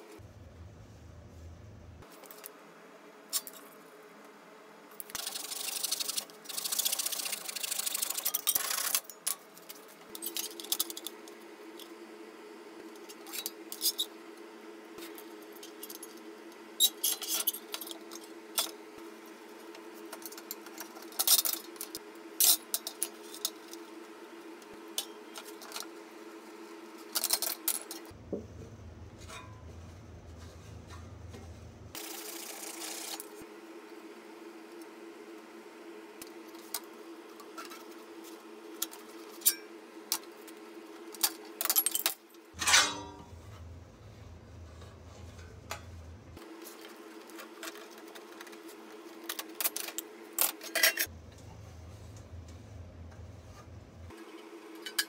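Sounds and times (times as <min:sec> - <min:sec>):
steady hum: 0:42.4 - 0:55.0.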